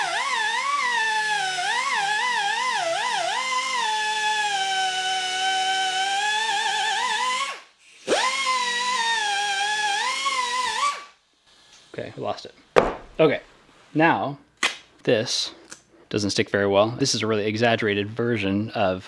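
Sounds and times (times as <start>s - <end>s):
air grinder whining: 0.0s - 11.9s.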